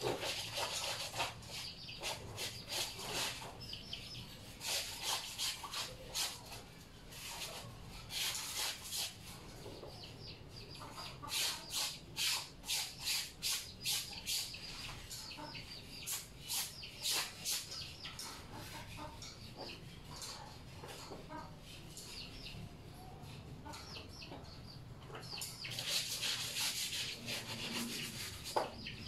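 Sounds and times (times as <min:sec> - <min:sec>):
wet fabric being scrubbed: 0:04.5 - 0:09.2, 0:25.7 - 0:28.6.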